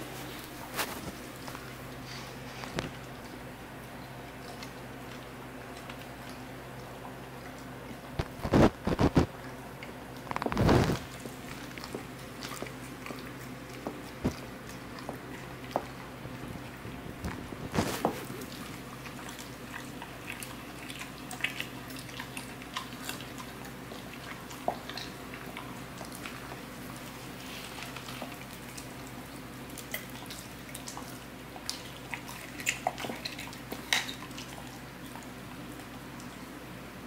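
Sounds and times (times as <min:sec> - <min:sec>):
steady low hum: 0:00.0 - 0:37.0
dog licking and mouthing bone: 0:11.0 - 0:36.4.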